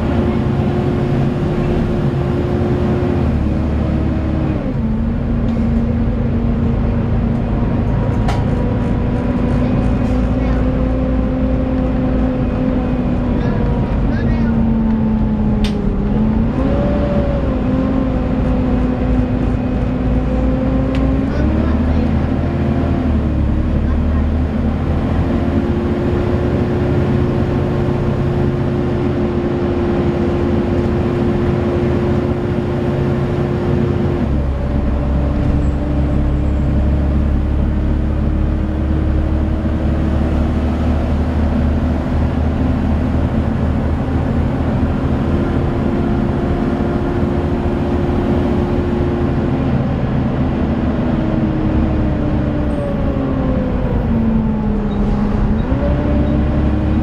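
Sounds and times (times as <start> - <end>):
engine cooling fan whine: 0.0 - 22.0
diesel bus engine rumbling: 0.0 - 57.0.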